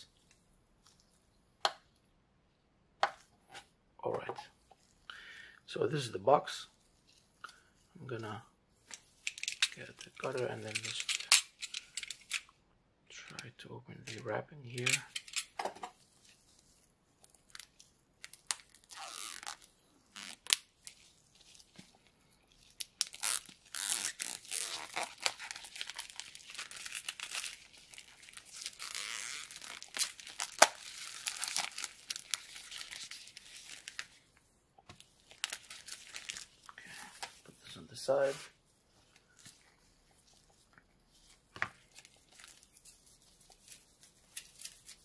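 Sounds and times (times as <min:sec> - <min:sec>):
plastic wrap tearing and crinkling: 0:08.8 - 0:12.4, 0:14.7 - 0:34.3, 0:35.0 - 0:37.6, 0:38.2 - 0:45.0.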